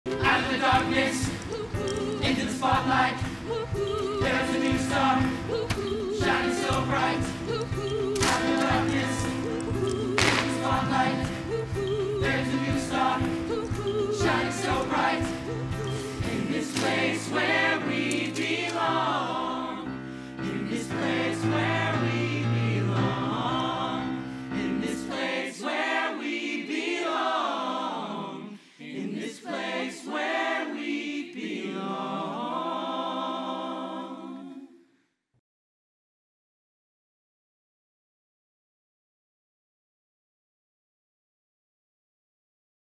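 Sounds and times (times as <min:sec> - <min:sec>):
band playing: 0:00.1 - 0:19.0
ensemble singing show tune: 0:00.1 - 0:34.8.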